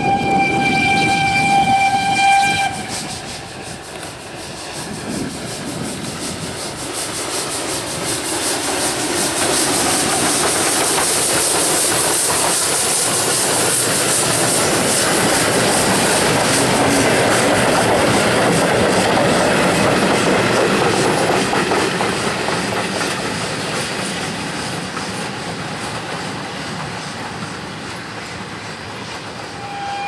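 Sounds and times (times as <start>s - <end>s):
steam locomotive whistle: 0.0s - 3.5s, 29.4s - 30.0s
steam engine chuffing: 0.0s - 30.0s
steam hissing: 0.0s - 30.0s.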